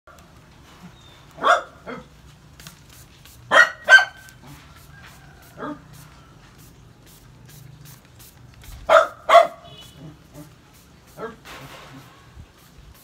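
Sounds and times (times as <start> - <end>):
dog barking: 1.4 - 2.1, 3.5 - 4.3, 5.6 - 5.9, 8.9 - 9.8, 11.2 - 11.4
spray bottle hisses: 2.5 - 13.0.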